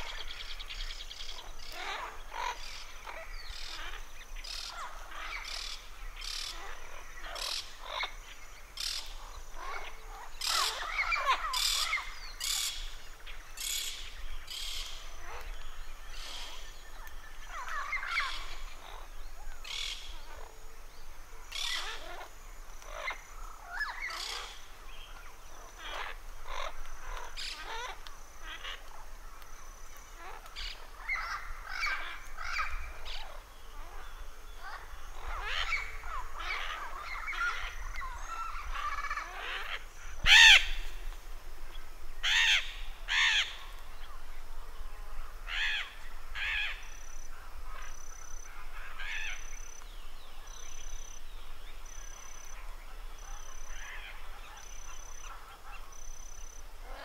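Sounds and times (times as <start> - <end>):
parrots calling: 8.8 - 12.9, 34.6 - 41.1, 42.2 - 44.1, 45.5 - 49.7.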